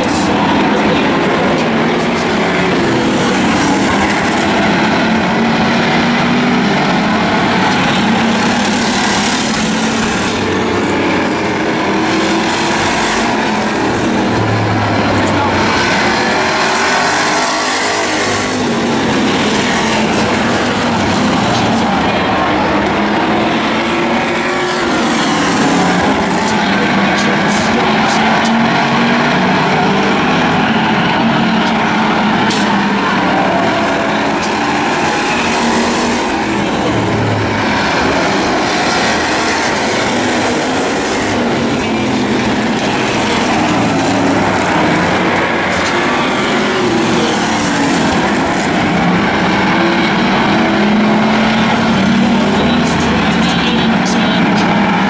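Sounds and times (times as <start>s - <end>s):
race car engines: 0.0s - 55.0s.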